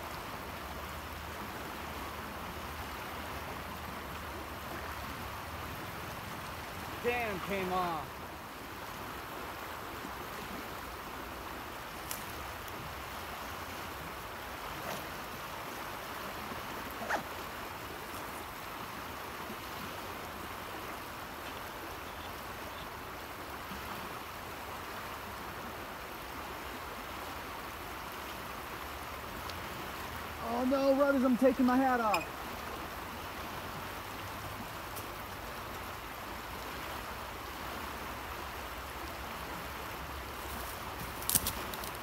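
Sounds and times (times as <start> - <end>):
river water rushing: 0.0 - 42.0.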